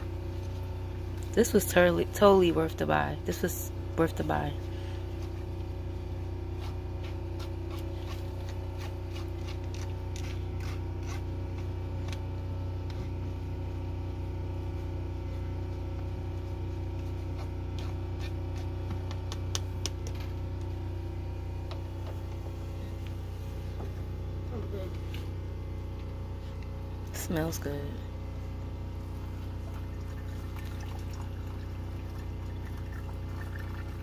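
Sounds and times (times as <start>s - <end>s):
steady low hum: 0.0s - 34.0s
scraping coffee grounds in mesh filter: 6.5s - 12.2s, 16.9s - 19.4s.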